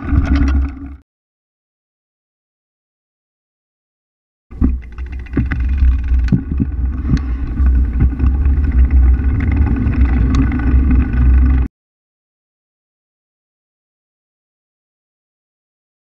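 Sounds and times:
bicycle tyre rumbling on rough ground: 0.0s - 1.0s, 4.5s - 11.7s.

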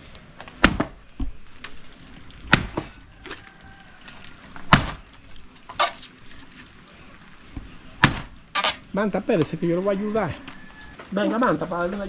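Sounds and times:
wood cracking and splintering: 0.4s - 9.5s
machete chopping wooden board: 0.6s - 1.0s, 2.5s - 2.9s, 4.6s - 5.0s, 8.0s - 8.8s.

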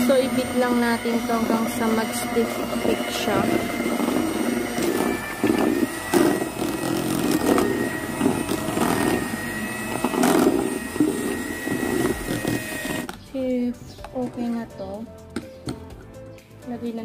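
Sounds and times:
electric hand mixer whining: 0.0s - 13.2s.

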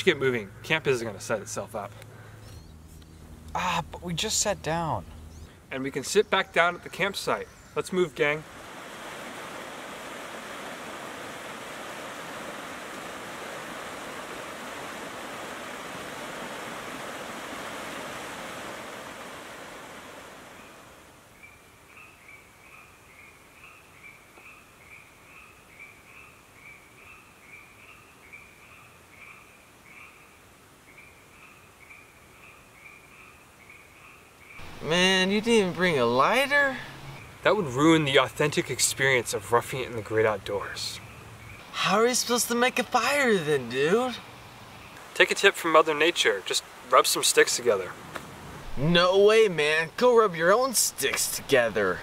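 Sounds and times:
frogs calling: 0.0s - 2.8s, 9.2s - 37.5s
rushing forest stream: 6.8s - 22.6s, 34.5s - 52.0s.

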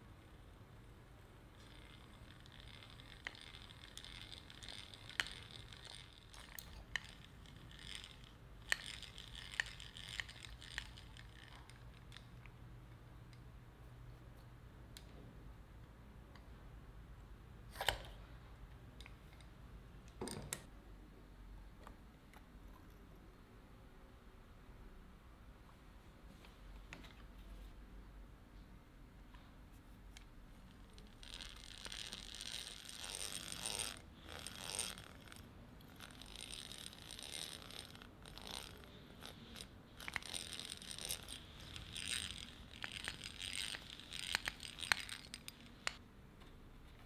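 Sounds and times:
hand drill grinding hiss: 36.0s - 46.0s.

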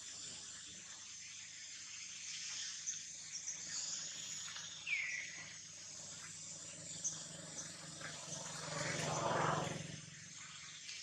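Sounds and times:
insects buzzing: 0.1s - 11.0s
low hum: 6.0s - 10.5s.

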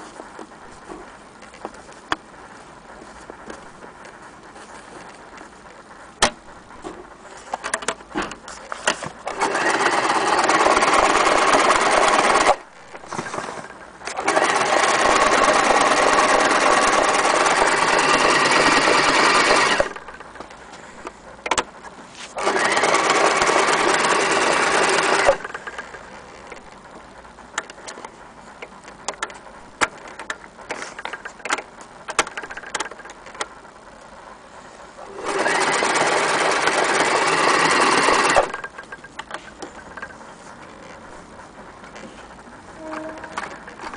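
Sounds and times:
electric sewing machine running: 9.3s - 20.3s, 22.4s - 26.0s, 35.0s - 38.8s.

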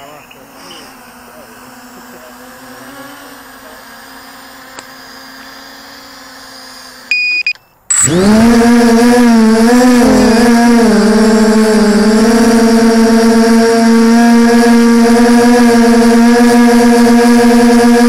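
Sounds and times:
drone motors spinning: 0.0s - 18.0s
faint hum of distant drone: 0.0s - 18.0s
short electronic beep: 7.1s - 8.2s.

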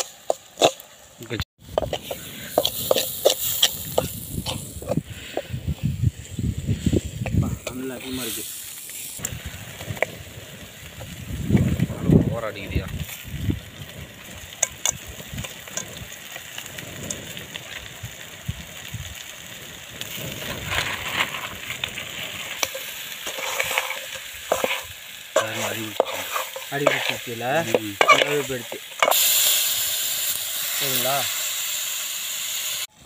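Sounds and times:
frying sizzle: 0.0s - 33.0s
shells and spoon knocking pan: 22.5s - 29.2s.

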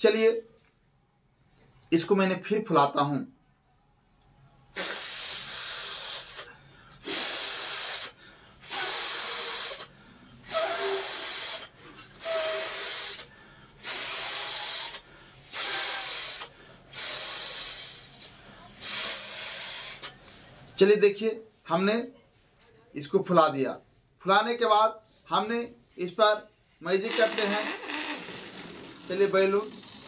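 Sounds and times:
person blowing up balloon: 4.8s - 20.2s, 27.0s - 30.0s.

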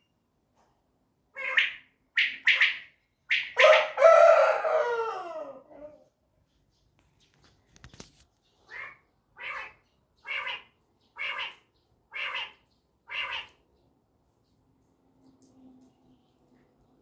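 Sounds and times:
brief rustle: 7.0s - 8.5s
bird calling: 8.4s - 13.6s.

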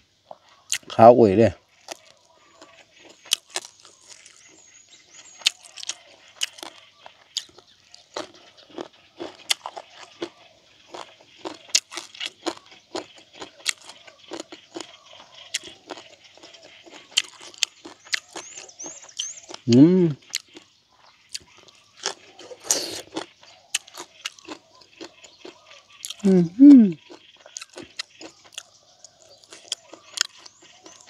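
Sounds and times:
chewing with crunches: 0.0s - 31.0s
wet mouth clicks: 26.0s - 28.7s.

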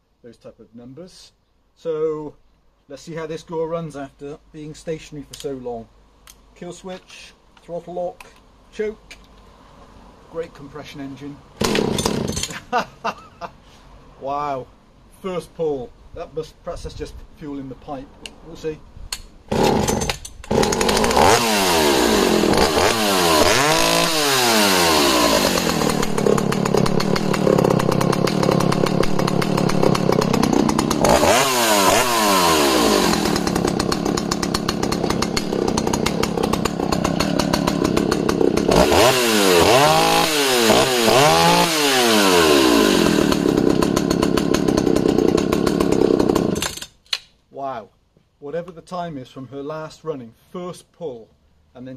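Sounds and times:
chainsaw engine revving: 11.6s - 12.6s, 19.5s - 47.0s.

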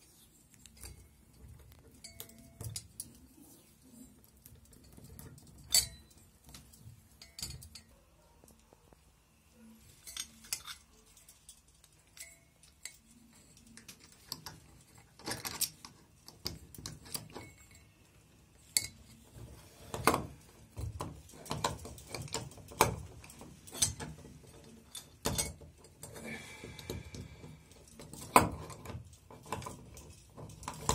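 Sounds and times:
metallic clinks and taps: 0.5s - 3.4s, 4.2s - 9.0s, 10.0s - 19.3s, 19.9s - 30.9s.

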